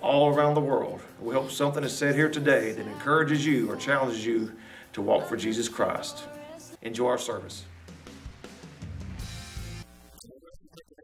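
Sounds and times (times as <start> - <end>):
instrumental music with deep bass: 7.6 - 11.0.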